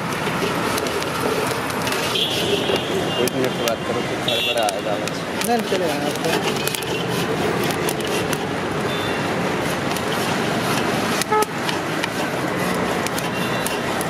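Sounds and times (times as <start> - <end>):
street traffic noise: 0.0 - 14.0
vehicle horn toot: 2.0 - 5.0, 11.3 - 11.5.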